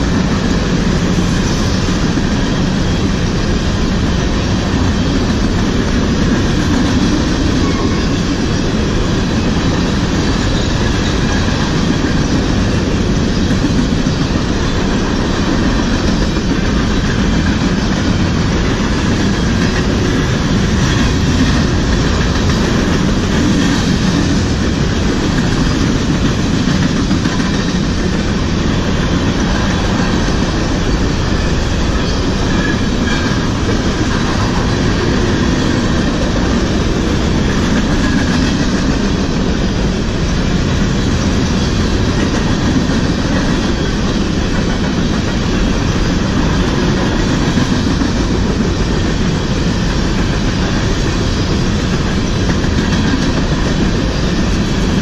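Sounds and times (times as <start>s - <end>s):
freight train rumbling past: 0.0s - 55.0s
steel wheels clattering on rails: 0.0s - 55.0s.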